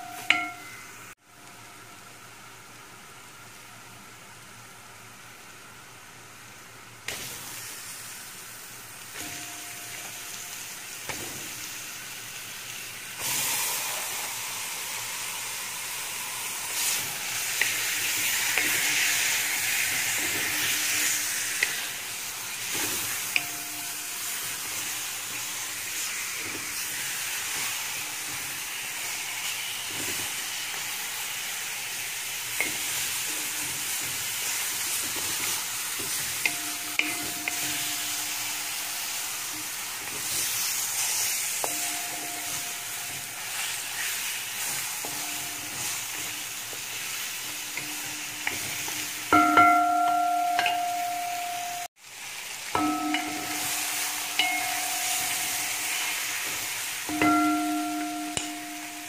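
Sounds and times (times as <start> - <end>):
chicken sizzling in hot oil: 7.0 - 59.0.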